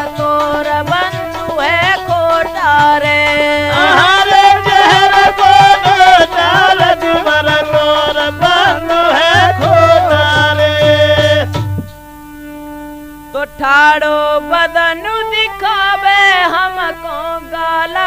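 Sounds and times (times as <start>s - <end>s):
ornamented folk melody: 0.0s - 18.0s
steady hand drumming: 9.3s - 12.0s.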